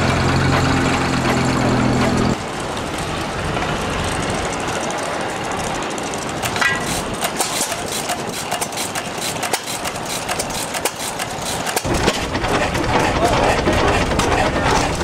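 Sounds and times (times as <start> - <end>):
drag saw engine clatter: 0.0 - 15.0.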